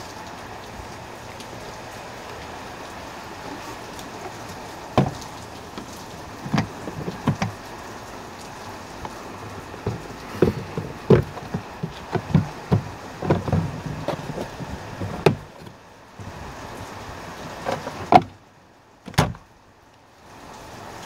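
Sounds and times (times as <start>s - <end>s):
glove box pushed shut: 4.9s - 7.6s, 9.8s - 15.7s, 17.6s - 18.4s, 19.1s - 19.4s
plastic clicks and knocks: 5.0s - 7.6s, 9.8s - 15.7s.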